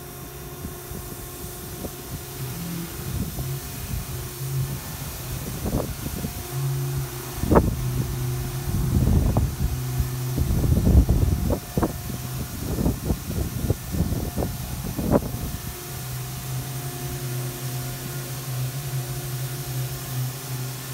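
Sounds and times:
car wash machinery hum: 0.0s - 20.9s
wind buffeting microphone: 0.4s - 16.5s.

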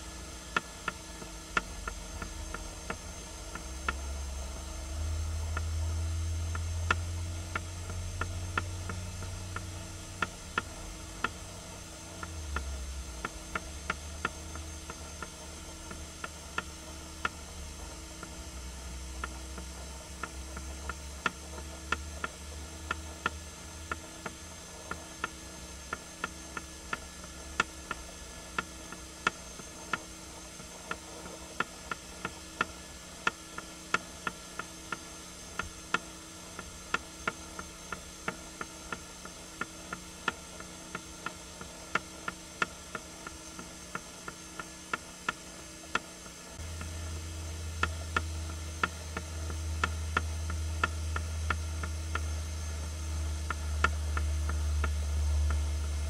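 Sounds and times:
steady hiss: 0.0s - 56.0s.

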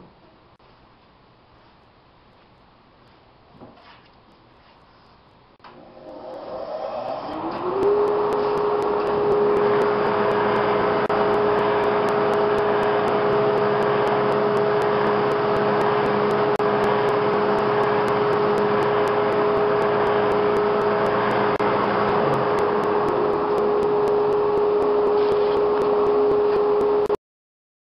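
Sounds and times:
drum sander running: 5.6s - 27.2s
dust collector humming: 5.6s - 27.2s.

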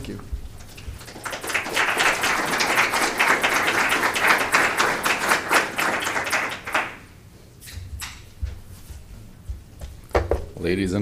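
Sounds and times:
audience applauding: 0.7s - 7.1s.

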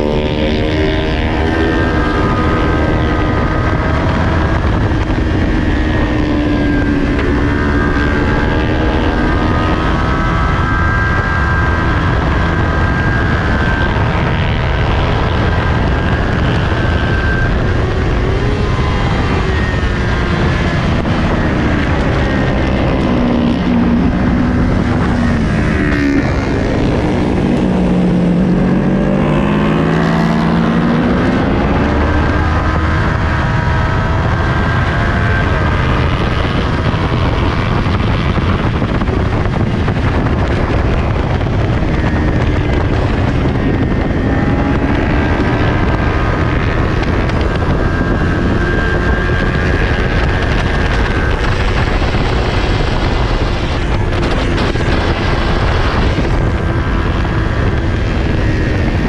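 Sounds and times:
motorcycle engine revving: 0.0s - 59.0s
wind noise: 0.0s - 59.0s.

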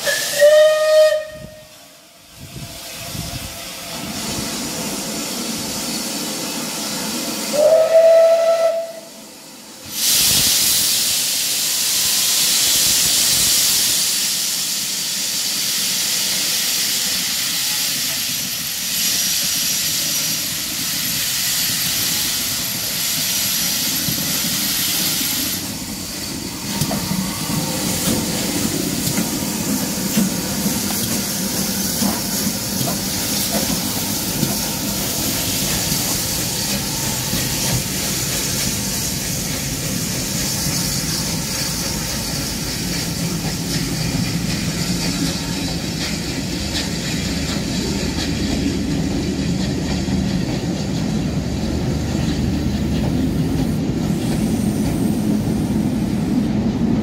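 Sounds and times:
steam locomotive whistle: 0.0s - 1.9s, 7.4s - 9.4s
loud hiss of steam: 0.0s - 57.0s.

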